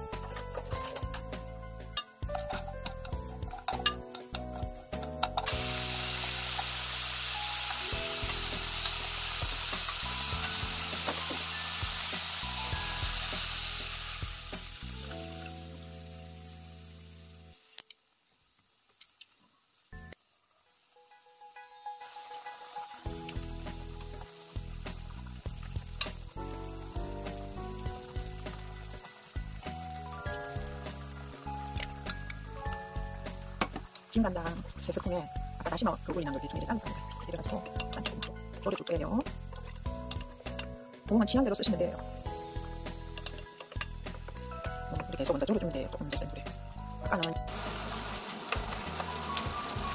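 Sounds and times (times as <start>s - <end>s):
vegetables sizzling in oil: 0.0s - 49.9s
chopsticks clicking against pan: 37.4s - 40.8s, 43.1s - 44.0s.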